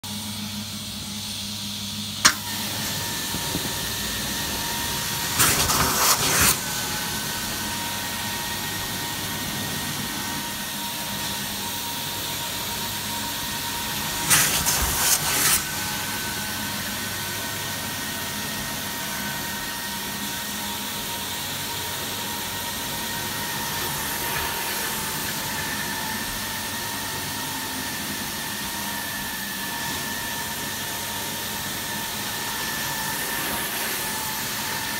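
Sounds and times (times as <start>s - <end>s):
carpet extraction vacuum hiss: 0.1s - 34.9s
vacuum rushing surges: 2.5s - 10.5s, 14.0s - 16.3s.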